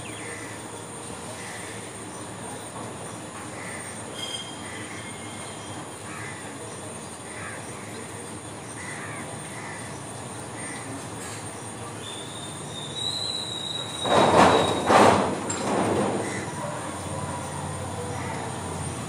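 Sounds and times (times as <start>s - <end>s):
outdoor background noise: 0.0s - 19.0s
thin high squeal: 4.1s - 4.7s.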